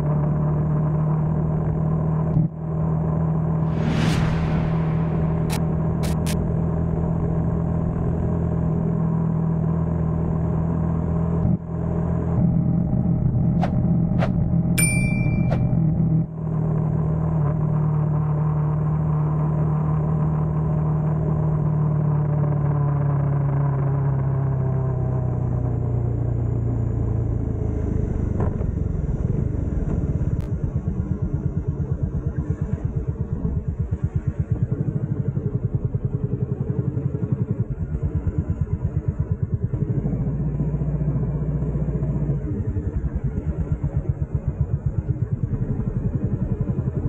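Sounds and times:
motorcycle engine running: 0:28.6 - 0:47.0.

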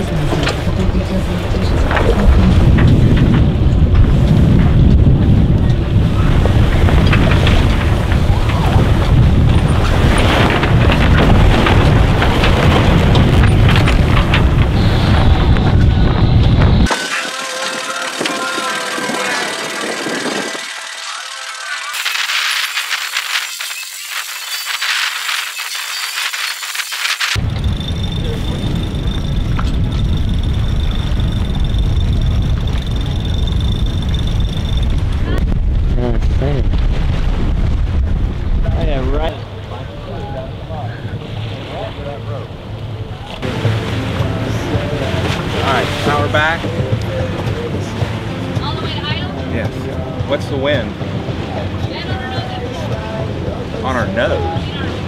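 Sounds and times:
wind buffeting microphone: 0:00.0 - 0:16.9, 0:27.3 - 0:55.0
thin high-pitched tone: 0:16.9 - 0:27.2.

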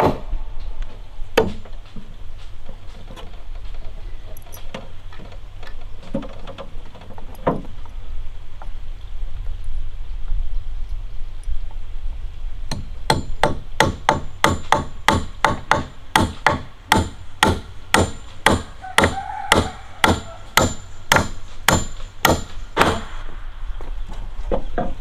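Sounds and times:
hammer striking wood: 0:01.4 - 0:01.7, 0:12.7 - 0:23.2.

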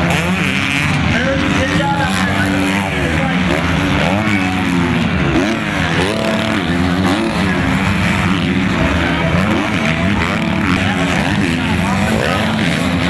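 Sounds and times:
motocross bikes revving: 0:00.0 - 0:13.0.

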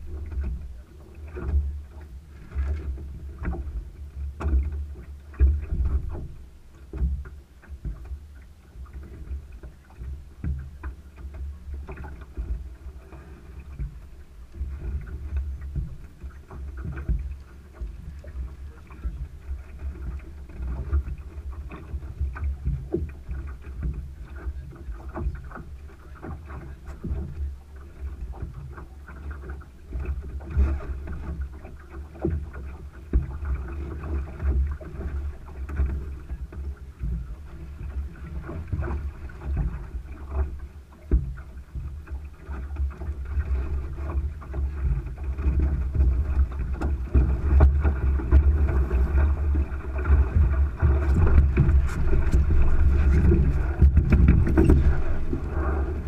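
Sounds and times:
water rushing along hull: 0:00.0 - 0:56.0
wind buffeting microphone: 0:45.4 - 0:56.0.

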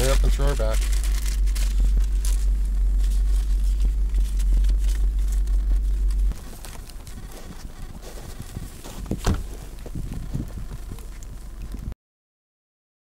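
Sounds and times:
plastic bag crinkling: 0:00.0 - 0:11.8
car engine idling: 0:00.0 - 0:11.9
quiet outdoor ambience: 0:00.0 - 0:12.0.

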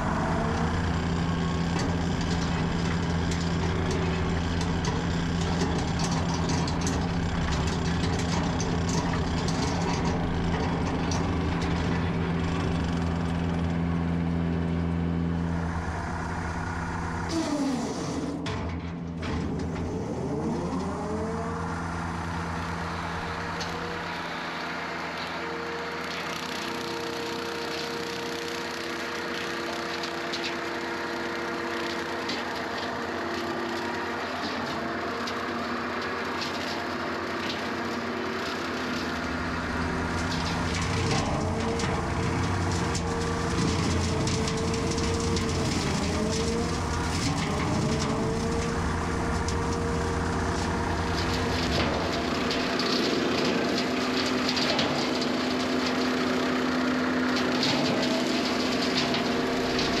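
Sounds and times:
brush cutter under load: 0:00.0 - 1:00.0
skid steer engine running: 0:00.0 - 1:00.0
wood cracking: 0:38.9 - 0:56.6.

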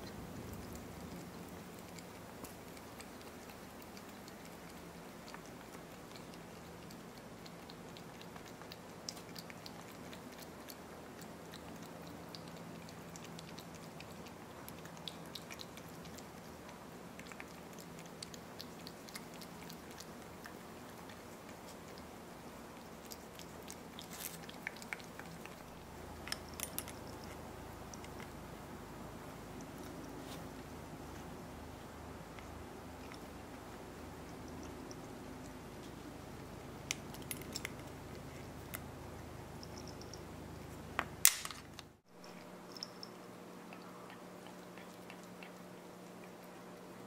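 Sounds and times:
cat tongue licking clicks: 0:00.0 - 0:22.1
faint low hum: 0:00.0 - 0:47.0.

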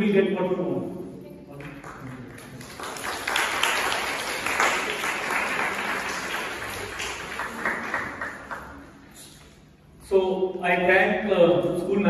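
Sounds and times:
audience clapping: 0:01.5 - 0:09.0.

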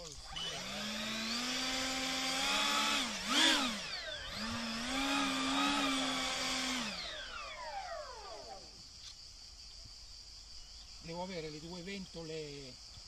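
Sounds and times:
model ducted fans whining: 0:00.0 - 0:08.8.

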